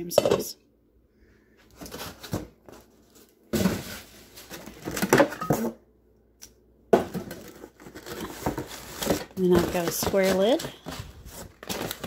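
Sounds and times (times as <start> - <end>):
scraping and rustling of a box: 1.6 - 5.7, 7.1 - 12.0.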